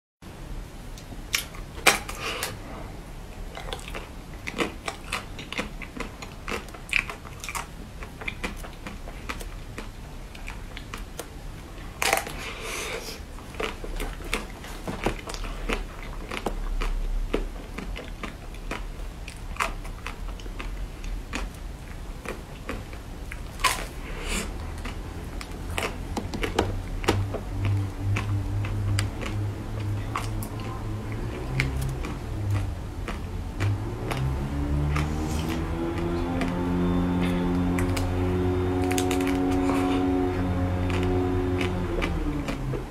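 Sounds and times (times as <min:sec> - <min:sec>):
crunchy biting and chewing: 0:03.4 - 0:42.9.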